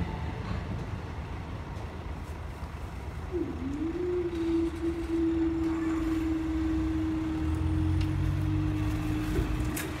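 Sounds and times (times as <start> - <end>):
car engine: 4.4 - 10.0.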